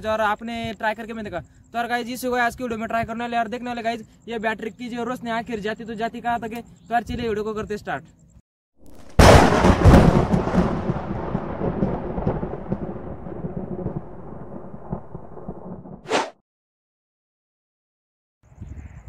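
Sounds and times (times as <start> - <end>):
loud crash and boom: 8.8 - 15.7
whoosh: 16.1 - 16.4.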